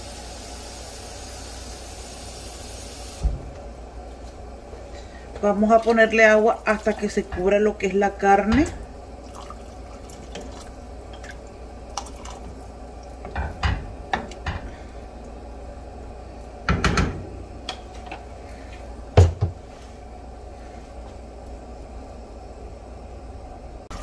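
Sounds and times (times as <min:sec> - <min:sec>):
wooden spoon stirring: 0:04.1 - 0:07.9, 0:09.2 - 0:14.8
water pouring into a pot: 0:09.1 - 0:13.2.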